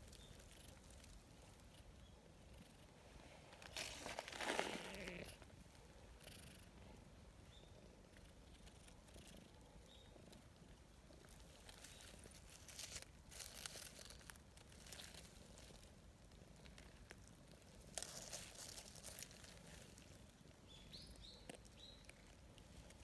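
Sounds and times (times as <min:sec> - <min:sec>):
dry leaves rustling: 0:03.6 - 0:05.4, 0:11.2 - 0:20.4.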